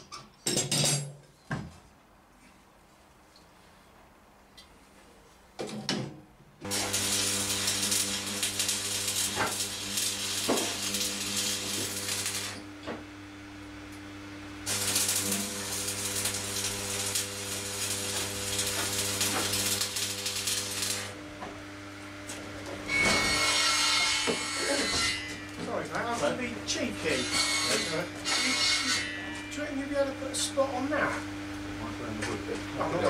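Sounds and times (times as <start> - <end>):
arc welder crackling hiss: 6.6 - 21.4.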